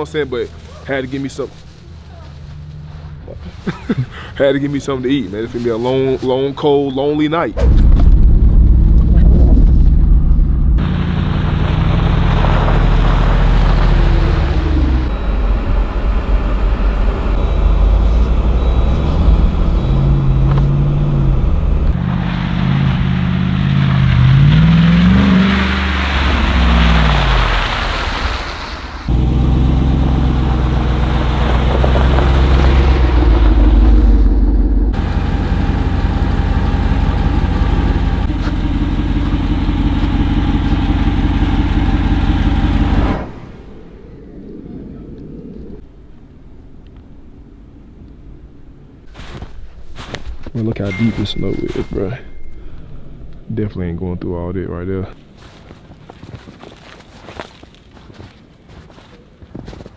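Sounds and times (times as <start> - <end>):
car engine running and revving: 7.6 - 28.3, 29.1 - 45.9.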